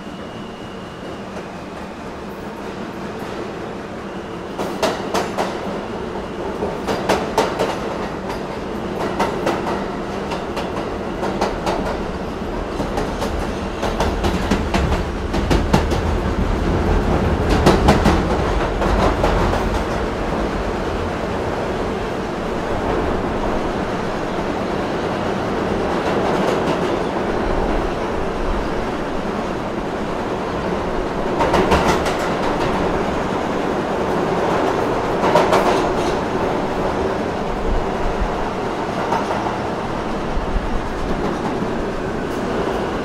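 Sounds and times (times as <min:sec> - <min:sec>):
subway train wheels clacking: 0:00.0 - 0:43.0
train rumble: 0:00.0 - 0:43.0.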